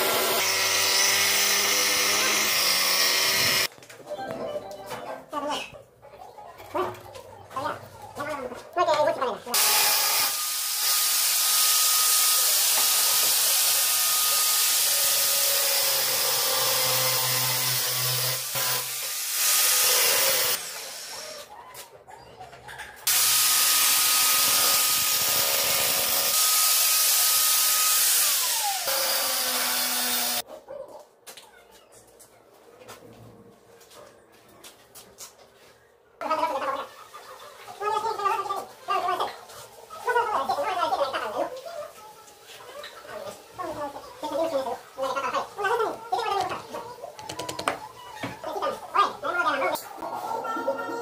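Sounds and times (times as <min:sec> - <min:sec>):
power tool whining: 0:00.0 - 0:03.7, 0:09.6 - 0:21.2, 0:23.1 - 0:30.4.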